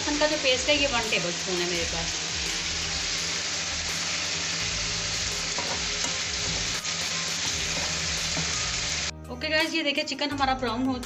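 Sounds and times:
onions sizzling in hot oil: 0.0 - 9.1
metal spoon stirring in pan: 7.4 - 8.6.

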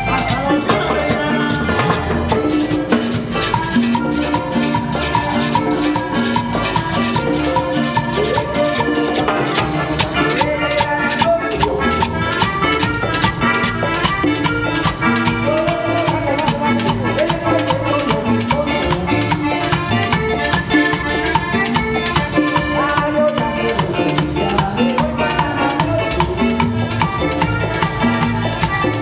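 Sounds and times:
electric bass: 0.0 - 29.0
guitar: 0.0 - 29.0.

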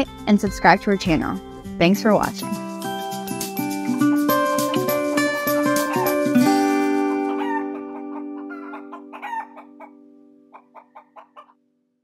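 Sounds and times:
outro music chord: 2.4 - 10.5
hen clucking: 5.2 - 6.4, 7.2 - 11.6.

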